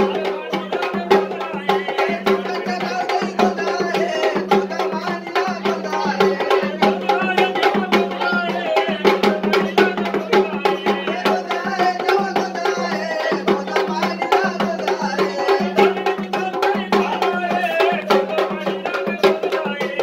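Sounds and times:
drums beating fast: 0.0 - 20.0
men singing: 0.0 - 20.0.

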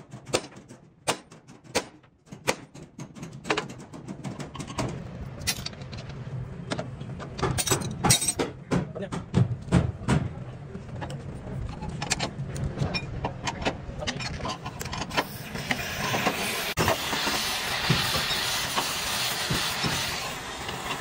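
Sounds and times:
steady hiss: 15.2 - 21.0.

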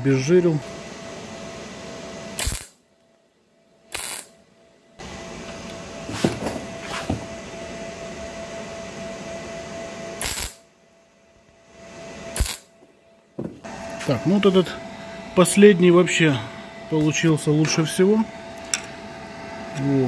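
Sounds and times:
welding arc crackling: 2.4 - 2.8, 3.9 - 4.3, 10.2 - 10.7, 12.3 - 12.7.

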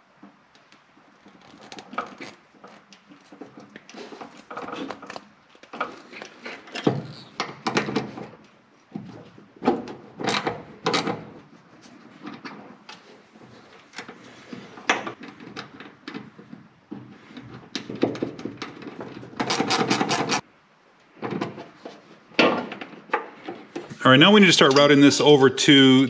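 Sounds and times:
small metallic clicks and scrapes: 17.3 - 20.4
rasping of nut turning: 19.4 - 20.4.

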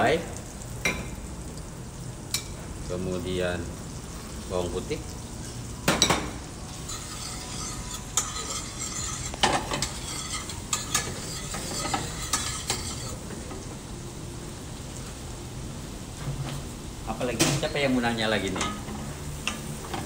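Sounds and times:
onion sizzling in a frying pan: 0.0 - 20.0
metal utensil scraping a pan: 5.3 - 13.6.

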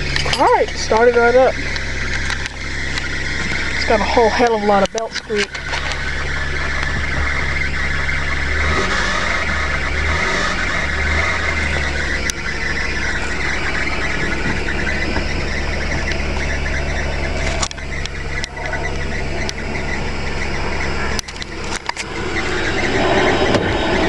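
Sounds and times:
car engine idling: 0.0 - 24.0
belt squeak: 11.6 - 23.3.

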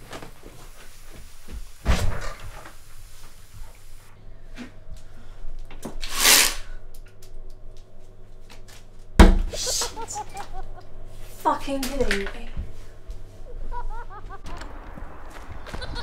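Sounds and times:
venetian blind rattling swish: 6.0 - 6.7.

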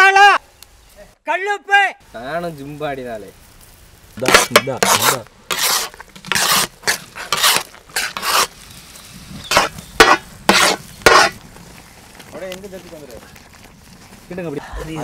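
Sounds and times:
metal masher scraping a griddle: 4.2 - 8.6, 9.4 - 11.4.

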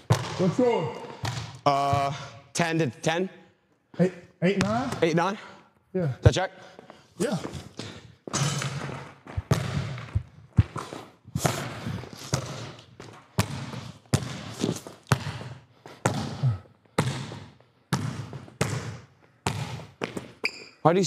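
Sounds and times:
basketball bouncing in gym: 0.0 - 2.3, 4.5 - 5.1, 7.3 - 20.8.

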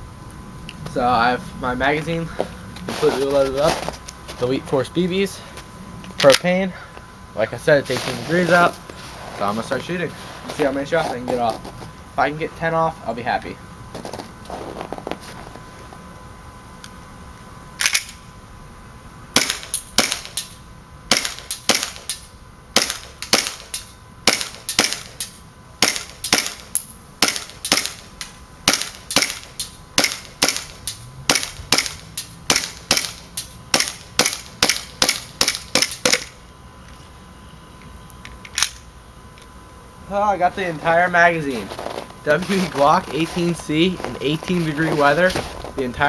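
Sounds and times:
airsoft pistol shots: 19.4 - 20.5, 21.1 - 22.2, 22.8 - 28.0, 28.6 - 36.3.

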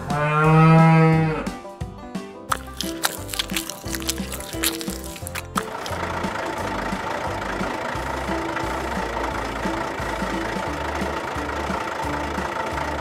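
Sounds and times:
toy tractor engine idling: 4.9 - 13.0.

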